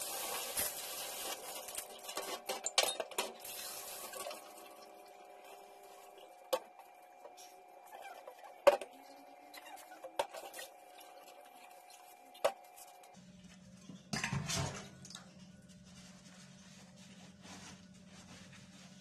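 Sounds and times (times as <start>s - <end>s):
dishes clinking in sink: 13.9s - 15.3s.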